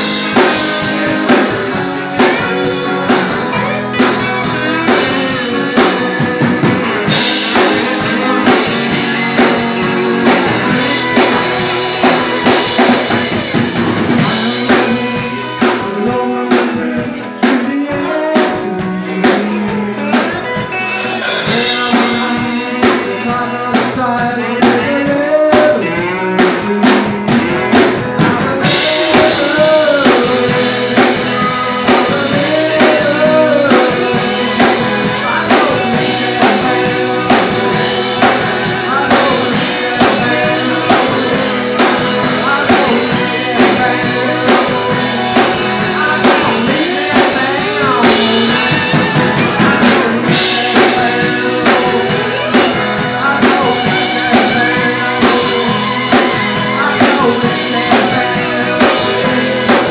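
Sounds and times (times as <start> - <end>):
drum kit: 0.0 - 59.9
electric guitar: 0.0 - 59.9
man singing: 0.0 - 59.9
strummed acoustic guitar: 0.0 - 59.9.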